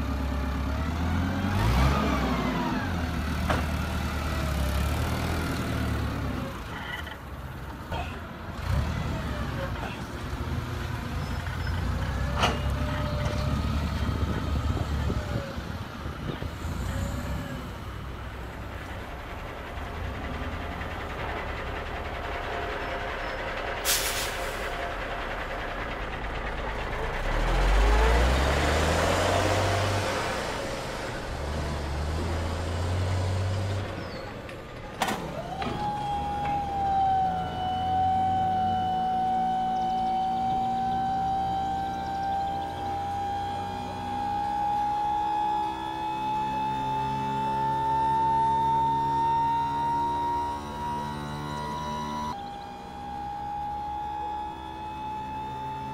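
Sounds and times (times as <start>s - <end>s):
diesel engine sound revving: 0.0s - 55.9s
air-brake hiss: 23.8s - 24.8s.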